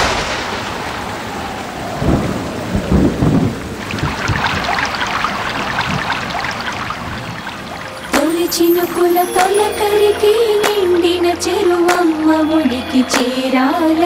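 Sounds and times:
sharp thunder crack: 0:00.0 - 0:04.5
deep thunder rolls: 0:00.0 - 0:05.0
heavy rain: 0:00.0 - 0:08.1.

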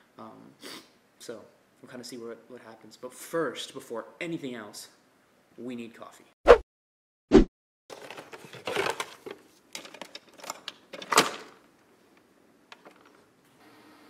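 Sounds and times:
plastic clicks and rustling: 0:07.9 - 0:11.6, 0:12.2 - 0:13.2.

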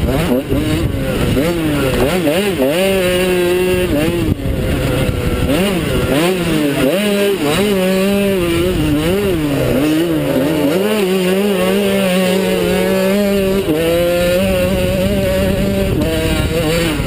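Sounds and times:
motocross bike engine revving: 0:00.0 - 0:17.0
wind noise: 0:00.0 - 0:17.0.

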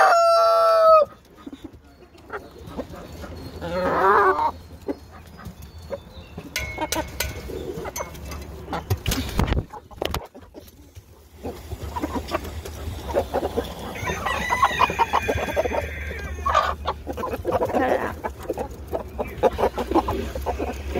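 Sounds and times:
rooster crowing: 0:00.0 - 0:01.1, 0:13.8 - 0:16.8
birds scurrying clicks and rustles: 0:01.0 - 0:20.9.

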